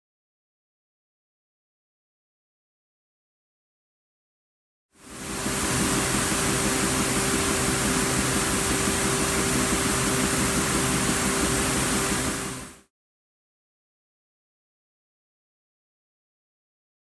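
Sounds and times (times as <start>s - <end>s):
constant machine hum: 5.0s - 12.8s
machinery hiss: 5.0s - 12.8s.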